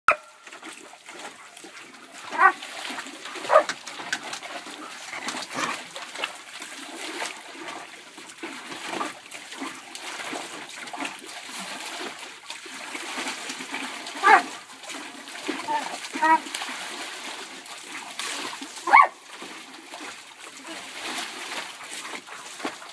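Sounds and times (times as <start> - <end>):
dog barking: 0.1 - 0.3, 2.3 - 2.6, 3.4 - 3.7, 14.2 - 14.4, 18.8 - 19.2
dog splashing in water: 0.1 - 22.9.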